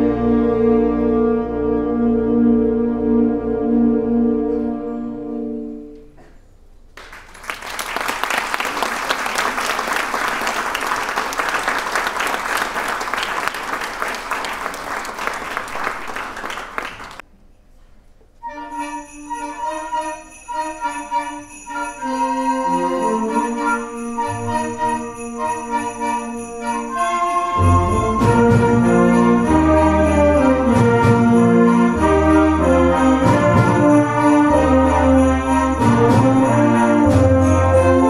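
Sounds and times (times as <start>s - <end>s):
audience applause: 7.0s - 17.2s
sleigh bells ringing: 18.4s - 38.0s
concert band playing: 26.7s - 38.0s.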